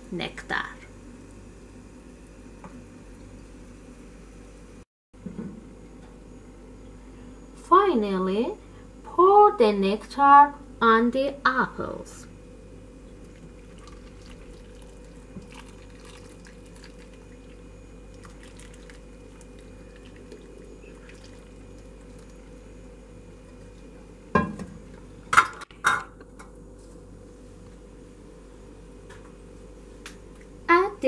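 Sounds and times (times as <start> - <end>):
steady low hum: 0.0 - 31.0
syrup trickling and dripping: 13.2 - 22.7.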